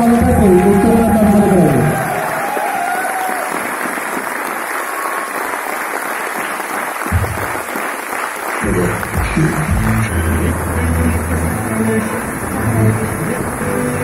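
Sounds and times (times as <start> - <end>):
audience clapping: 0.0 - 14.0
loud music bass: 7.2 - 7.6, 8.6 - 14.0.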